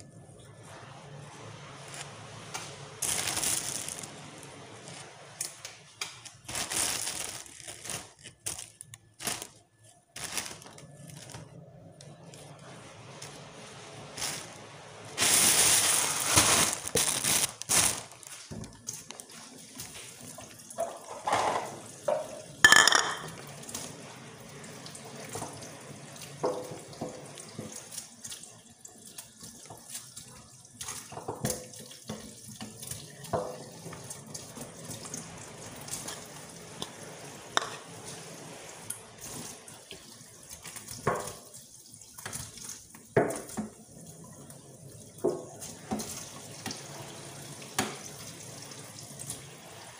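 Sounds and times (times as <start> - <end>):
tap water running into sink: 18.4 - 49.9.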